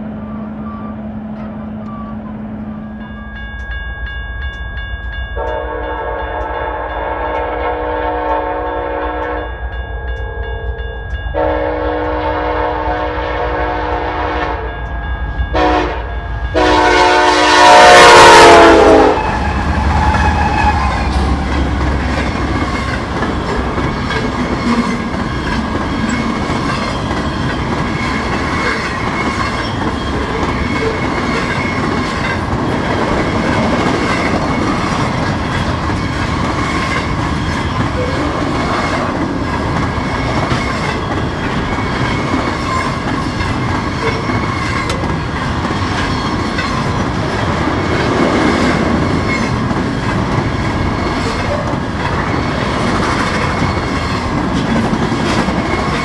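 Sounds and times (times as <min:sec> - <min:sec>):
freight train rumbling past: 0:00.0 - 0:56.0
faint high wheel squeal: 0:00.2 - 0:03.5.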